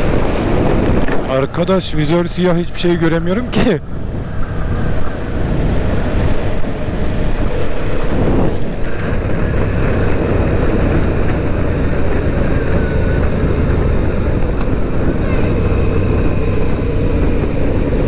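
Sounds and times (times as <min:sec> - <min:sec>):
wind rushing over microphone: 0:00.0 - 0:18.0
motorcycle engine running: 0:03.9 - 0:18.0.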